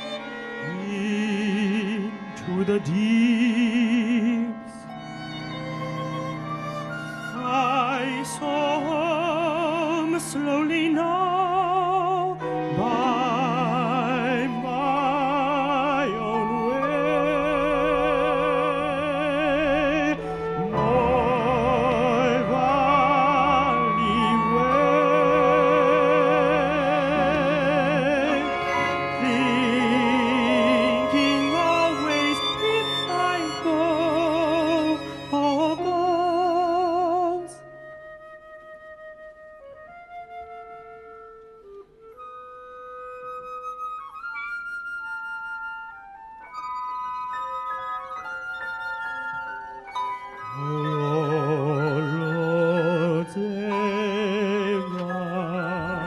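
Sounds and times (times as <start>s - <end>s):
man singing operatically: 0.0s - 4.9s, 7.4s - 37.6s, 50.4s - 56.0s
chamber ensemble playing: 0.0s - 56.0s.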